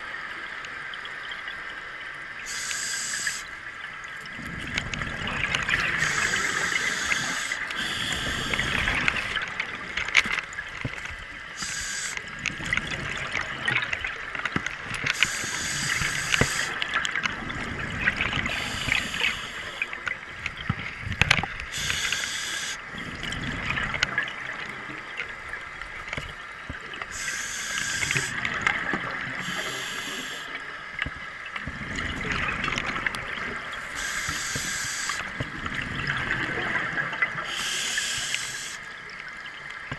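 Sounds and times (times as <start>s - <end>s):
scuba regulator breathing: 2.5s - 3.5s, 6.0s - 9.4s, 11.6s - 12.3s, 15.1s - 16.8s, 18.5s - 19.9s, 21.7s - 22.8s, 27.1s - 28.4s, 29.4s - 30.6s, 33.9s - 35.3s, 37.4s - 38.9s
exhaled bubbles rushing: 4.2s - 10.6s, 22.9s - 24.8s, 31.6s - 34.0s.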